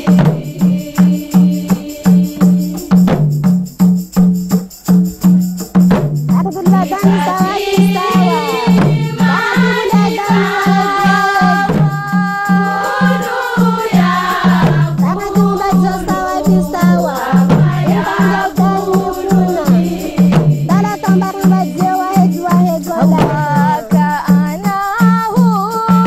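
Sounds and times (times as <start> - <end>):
women's choir chanting: 0.0 - 3.2, 6.7 - 24.1
frame drums beating: 0.0 - 26.0.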